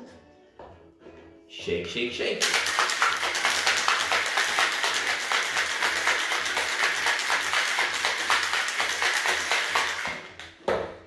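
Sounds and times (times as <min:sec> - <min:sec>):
ice rattling in cocktail shaker: 0:02.4 - 0:10.4.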